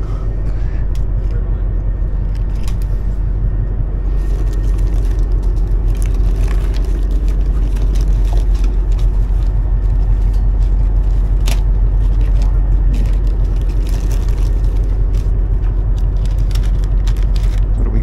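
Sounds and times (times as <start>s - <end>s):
boat engine rumble: 0.0s - 18.0s
plastic packets crinkling: 4.1s - 18.0s.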